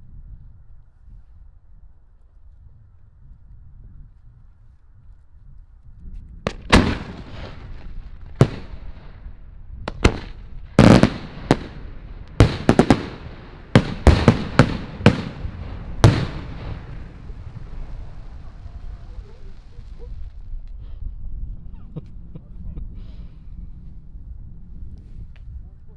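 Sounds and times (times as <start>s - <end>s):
firework shells bursting: 9.9s - 17.9s.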